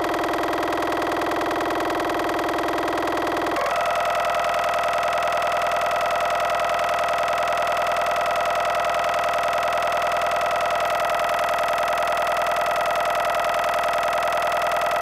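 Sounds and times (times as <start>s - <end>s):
siren-like electronic noise drone: 3.6s - 15.0s.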